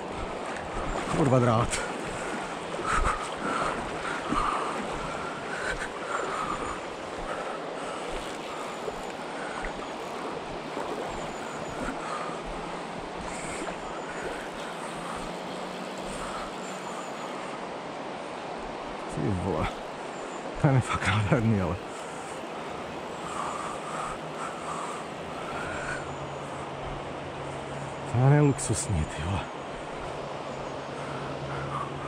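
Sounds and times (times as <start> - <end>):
river rushing over stones: 0.0 - 17.0.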